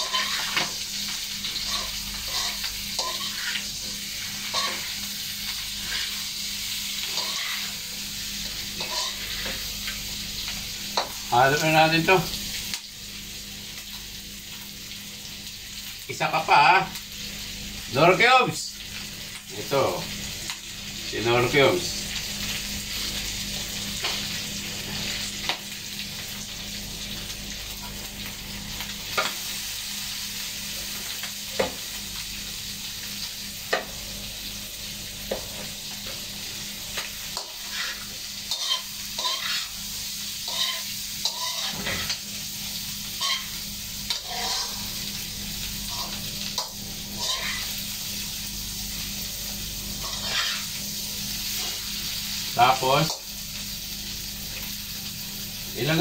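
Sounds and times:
metal spatula scraping a pan: 0.0 - 0.7, 1.6 - 3.6, 4.5 - 4.9, 7.0 - 7.8, 8.8 - 9.6, 37.4 - 39.7, 40.5 - 42.2, 43.2 - 45.0, 47.2 - 47.8, 50.0 - 50.7
tofu sizzling in a wok: 0.0 - 56.0.

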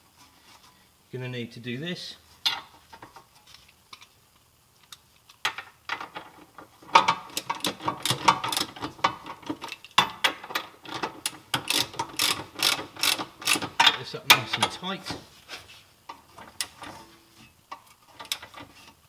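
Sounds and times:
socket ratchet clicking: 11.6 - 13.7.

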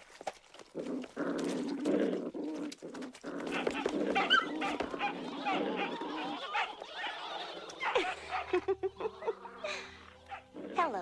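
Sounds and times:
cartoon puppies yipping and whimpering: 3.5 - 10.6.

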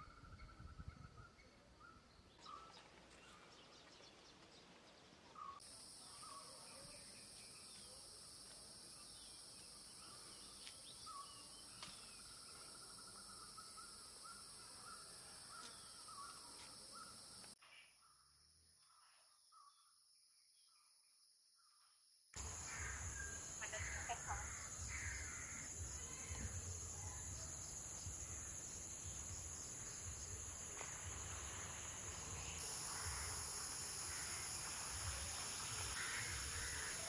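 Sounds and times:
birds calling with trilled notes: 0.0 - 8.0, 9.0 - 17.4
high-pitched insect drone: 22.4 - 37.0.

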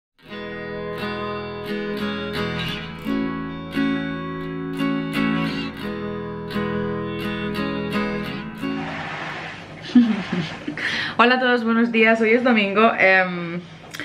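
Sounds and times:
strummed acoustic guitar: 0.2 - 10.8.

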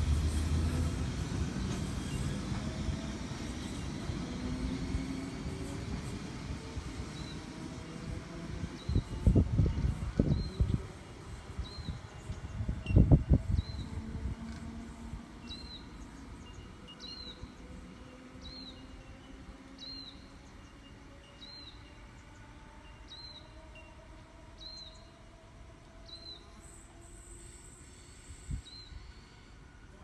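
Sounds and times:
distant electric train hum: 0.0 - 30.0
wind on microphone: 6.2 - 15.3.

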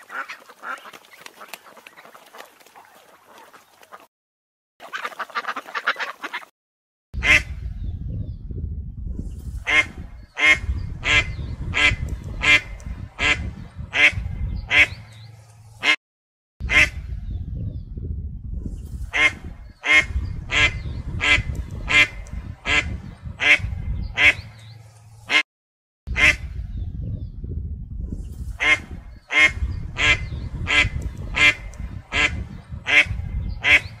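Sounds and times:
ducks quacking: 0.0 - 4.1, 4.8 - 6.5, 7.2 - 7.6, 9.6 - 15.2, 16.6 - 17.0, 19.1 - 25.4, 26.1 - 26.5, 28.6 - 34.0.

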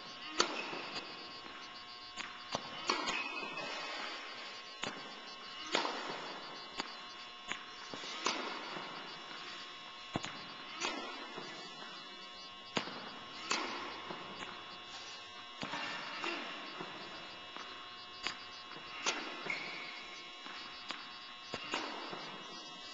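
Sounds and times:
ball bouncing on hard court: 0.3 - 4.0, 4.8 - 6.9, 7.5 - 9.6, 12.7 - 14.6, 15.6 - 22.4.

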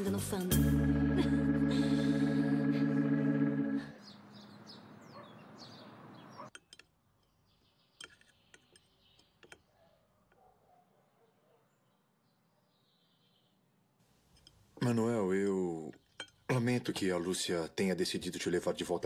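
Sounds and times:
held music chord: 0.0 - 4.0
birds chirping: 0.8 - 13.7
cutlery clicking on dishes: 6.5 - 7.4, 8.0 - 9.6, 16.2 - 16.4.

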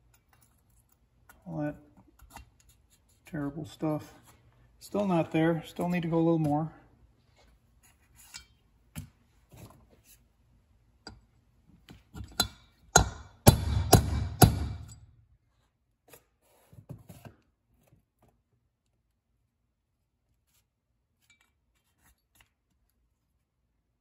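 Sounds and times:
hammer tapping metal: 12.3 - 15.0.

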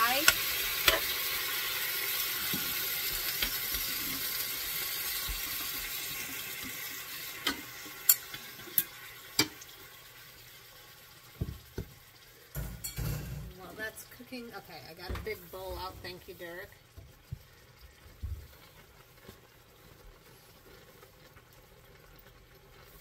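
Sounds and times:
meat sizzling in a frying pan: 0.0 - 23.0.

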